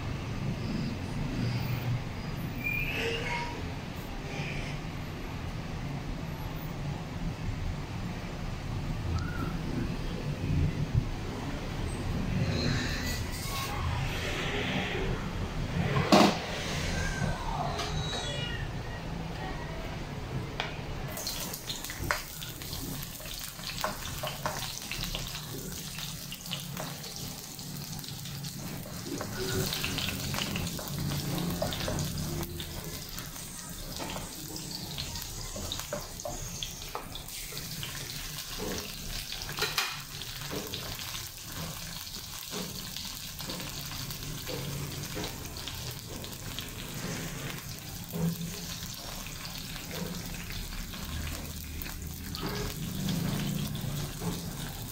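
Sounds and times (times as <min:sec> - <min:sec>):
vegetables sizzling in oil: 0:21.1 - 0:54.9
spatula scraping pan: 0:28.4 - 0:45.4.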